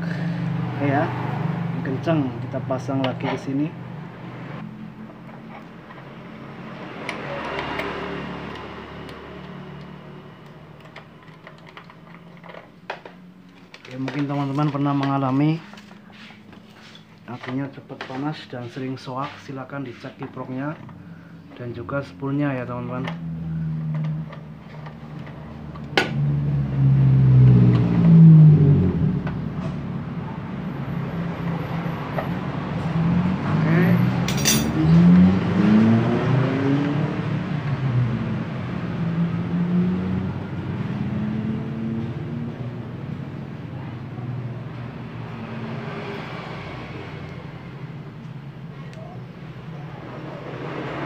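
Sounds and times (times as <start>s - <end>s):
vehicle engine droning: 19.8s - 51.0s.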